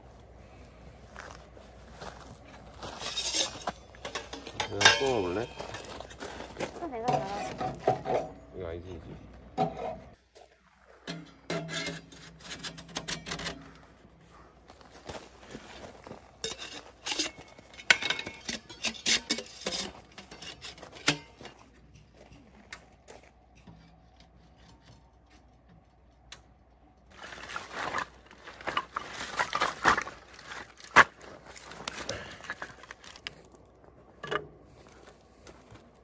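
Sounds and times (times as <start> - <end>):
objects clicking and clattering: 3.0 - 8.4.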